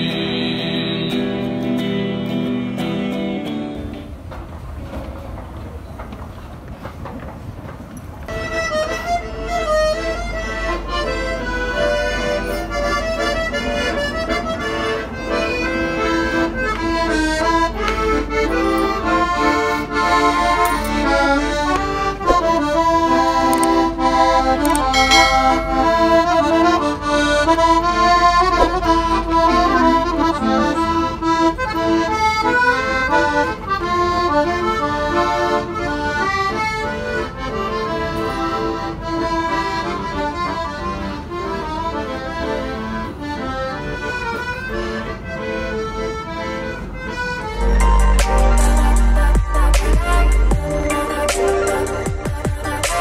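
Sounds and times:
train rumble: 3.9s - 8.4s
accordion playing a tune: 8.3s - 53.0s.

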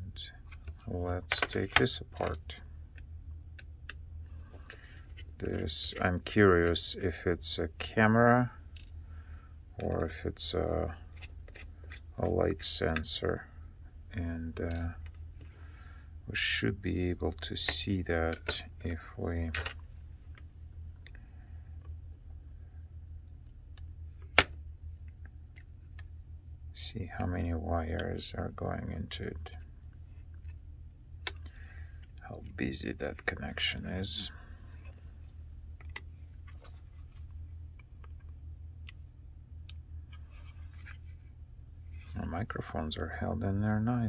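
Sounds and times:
steady low hum: 0.0s - 44.0s.

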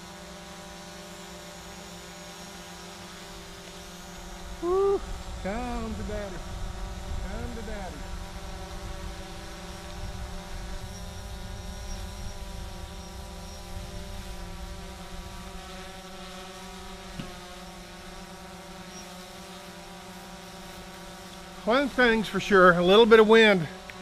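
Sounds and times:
drone propellers buzzing: 0.0s - 24.0s
wind rumbling on microphone: 4.6s - 15.6s.

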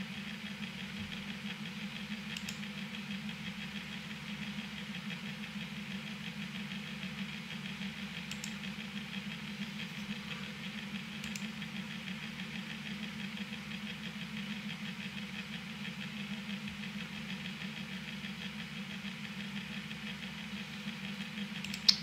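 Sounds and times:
machine hum with flutter: 0.0s - 22.0s
short clicks: 2.3s - 2.6s, 8.3s - 8.6s, 11.2s - 11.5s, 21.6s - 22.0s.

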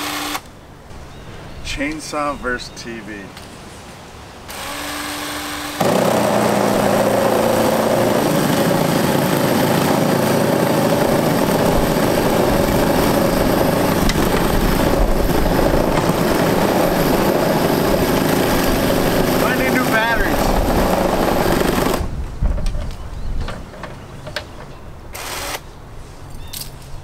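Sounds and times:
electric chainsaw cutting: 0.0s - 0.5s, 4.5s - 22.1s, 25.2s - 25.6s.

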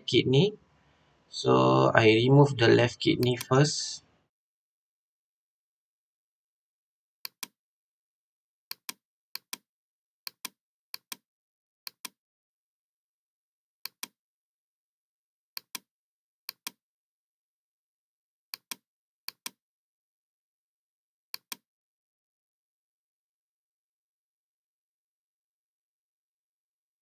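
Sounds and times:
computer mouse clicking: 7.2s - 7.5s, 13.9s - 14.2s, 15.6s - 15.8s, 16.5s - 16.8s, 18.6s - 19.6s, 21.4s - 21.6s.

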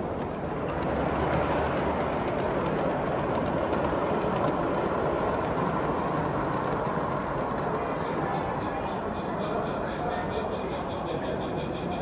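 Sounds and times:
hubbub of exhibition hall: 0.0s - 12.0s
model trains rolling on track: 0.0s - 12.0s.

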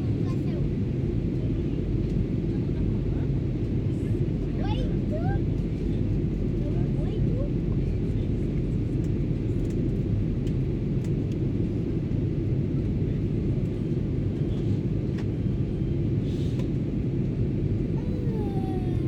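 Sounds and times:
airplane cabin engine roar: 0.0s - 19.0s.

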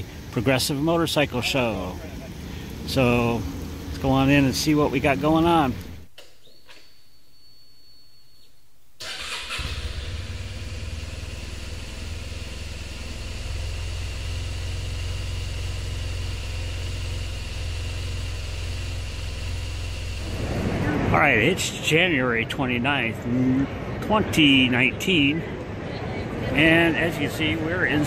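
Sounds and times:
motorcycle engine starting and idling: 9.0s - 20.9s.

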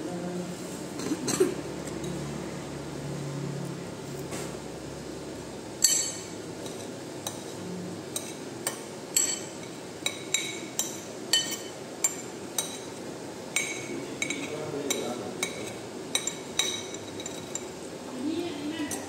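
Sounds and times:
cutlery clinking against bowl: 5.8s - 12.9s, 13.5s - 17.8s.

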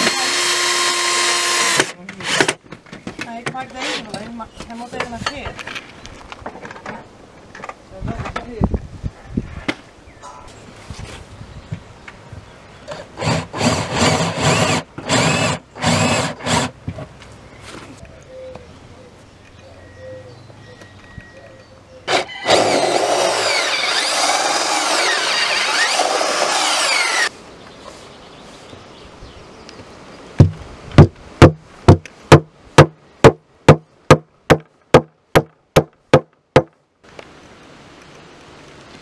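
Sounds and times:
power tool running: 0.0s - 2.6s, 13.0s - 16.7s, 22.1s - 27.3s.

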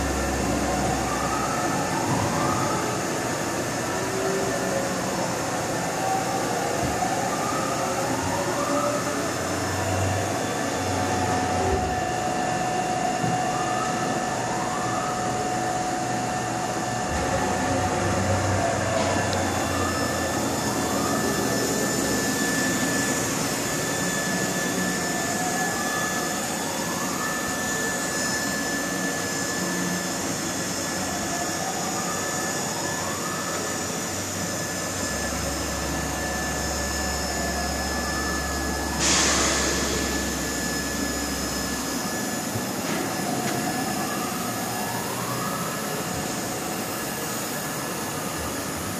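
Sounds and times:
machine steady hum: 0.0s - 48.9s
rising machine whines: 0.0s - 48.9s.

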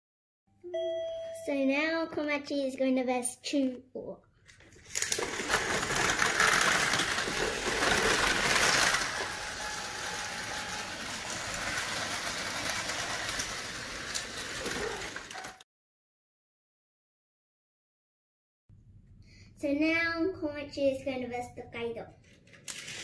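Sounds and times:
toy train motors whirring: 4.7s - 15.6s, 22.2s - 23.0s.

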